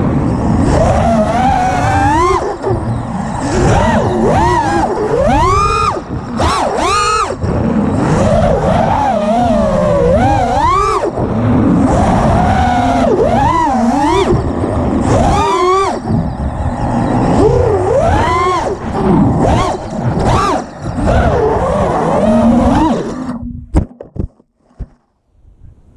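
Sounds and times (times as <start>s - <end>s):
drone motors buzzing whine: 0.0s - 23.8s.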